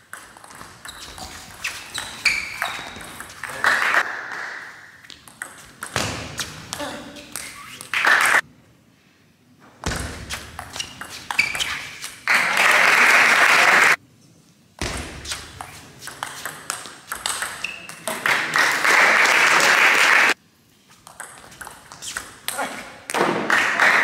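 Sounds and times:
applause: 3.4 - 4.6, 7.9 - 8.4, 12.3 - 14.0, 18.2 - 20.4, 23.4 - 24.0.

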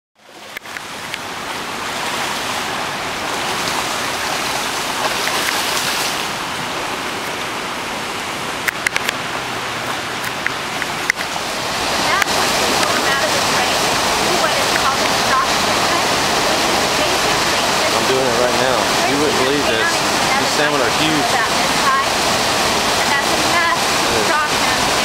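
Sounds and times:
creek water rushing over rocks: 0.2 - 25.0.

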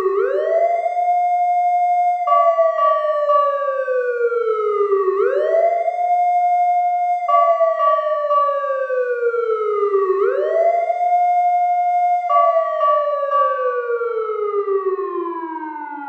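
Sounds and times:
siren wailing: 0.0 - 16.0.

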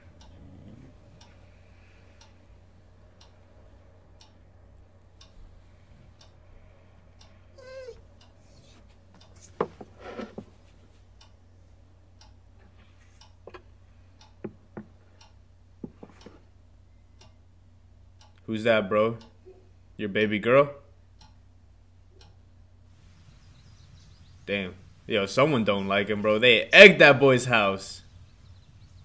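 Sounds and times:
clock ticking: 0.0 - 0.4, 1.0 - 6.6, 11.2 - 12.6, 13.2 - 18.5, 19.1 - 19.5, 21.1 - 22.7
low hum: 0.0 - 29.0.

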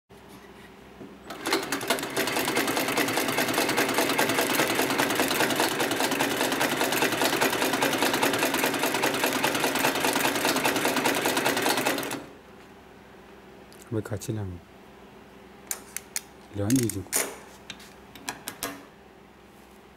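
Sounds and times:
sewing machine clattering: 1.3 - 12.2.

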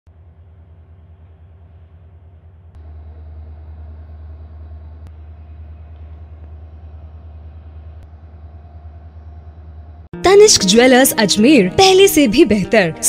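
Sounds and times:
engine idling: 0.1 - 10.1.

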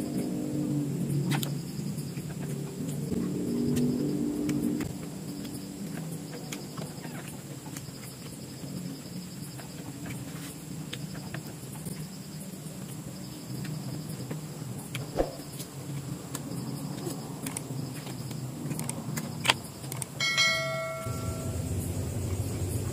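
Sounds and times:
bell-like chime: 20.2 - 21.7
low hum: 20.4 - 22.9.

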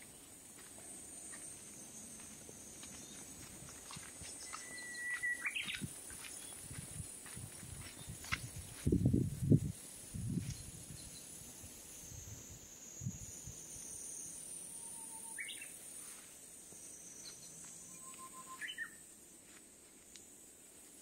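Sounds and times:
high-pitched insect buzz: 1.1 - 16.2
bird whistling song: 4.3 - 6.5, 14.7 - 15.7, 17.2 - 19.0.

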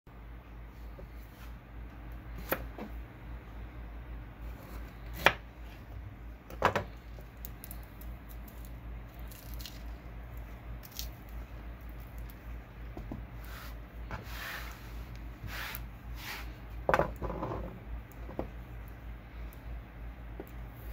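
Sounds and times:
pepper pieces rubbing: 7.1 - 12.6.

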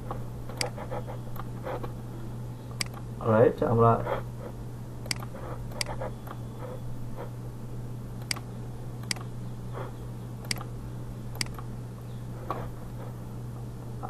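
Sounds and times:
steady low hum: 0.0 - 14.0
computer mouse clicking: 2.8 - 3.0, 5.0 - 6.4, 8.2 - 8.4, 9.0 - 9.3, 10.4 - 10.7, 11.4 - 11.7.

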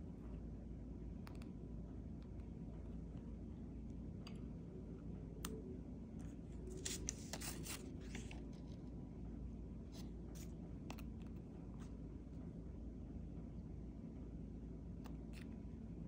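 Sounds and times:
low steady hum: 0.0 - 16.0
paper rustling and scraping: 6.6 - 8.8.

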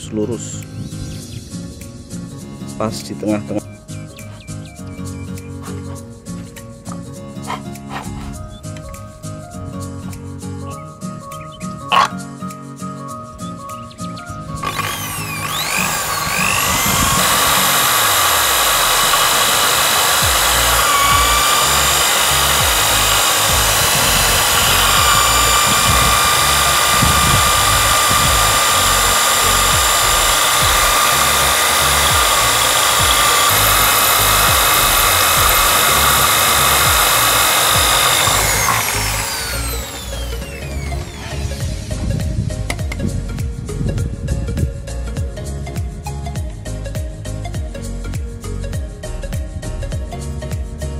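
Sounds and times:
cordless drill whining: 14.6 - 42.0.

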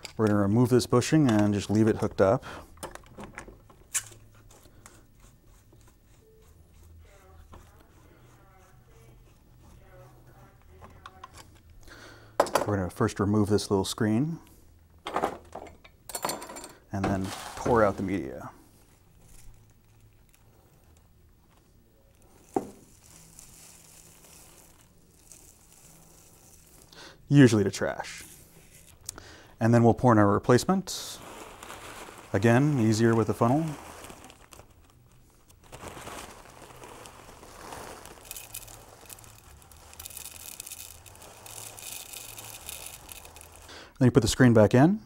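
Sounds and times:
silica crystals pouring and rattling: 17.1 - 21.0, 22.1 - 28.9, 30.5 - 44.4
plastic bag crinkling: 17.1 - 27.0, 30.5 - 43.8.

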